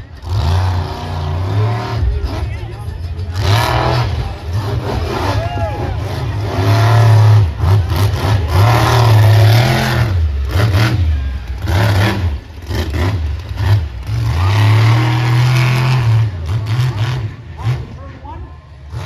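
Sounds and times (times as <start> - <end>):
truck engine revving: 0.0 - 19.0.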